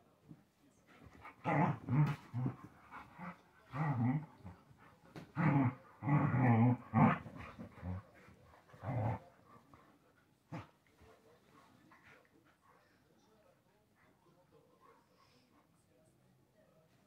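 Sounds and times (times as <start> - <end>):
dogs growling: 1.0 - 10.8.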